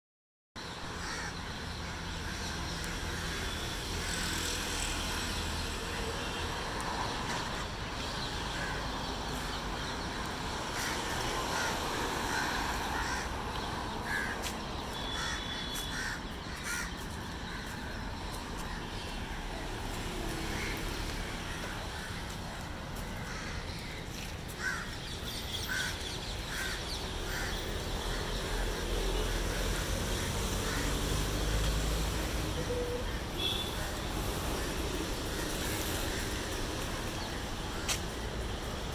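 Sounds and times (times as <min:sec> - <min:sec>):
crows cawing: 0:00.9 - 0:04.4, 0:10.6 - 0:18.0, 0:20.4 - 0:31.2.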